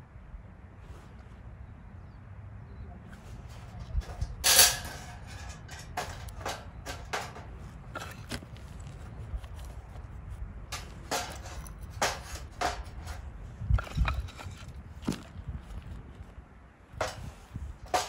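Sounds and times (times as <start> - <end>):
objects knocking and clicking: 10.7 - 15.9, 17.0 - 18.0.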